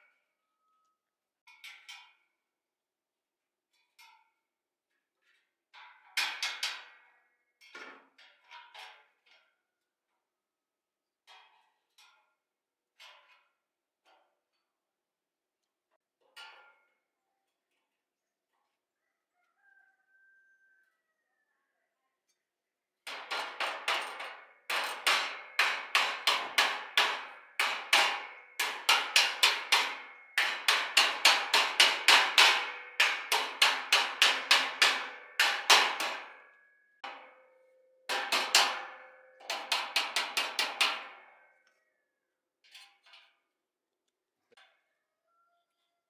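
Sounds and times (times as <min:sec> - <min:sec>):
hammer striking steel: 0:23.1 - 0:41.3.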